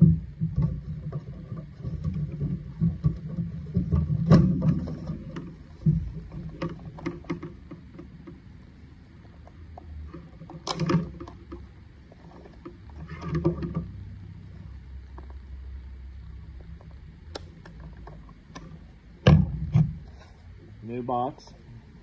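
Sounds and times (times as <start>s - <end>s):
cables rustling and clattering: 0.0s - 15.5s, 16.2s - 20.6s
low steady hum: 0.0s - 22.0s
loud thump: 19.2s - 20.0s.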